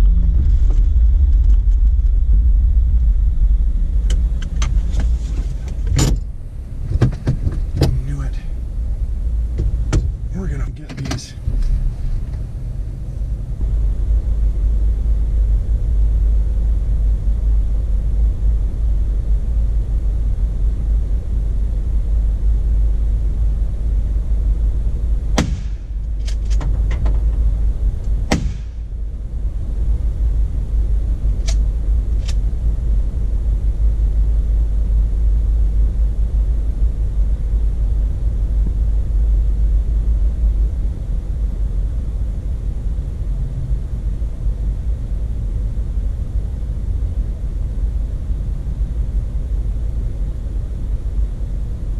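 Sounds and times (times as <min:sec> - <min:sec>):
vehicle cab low rumble: 0:00.0 - 0:51.9
sharp knocks and rattles: 0:04.1 - 0:08.0, 0:25.4 - 0:27.5.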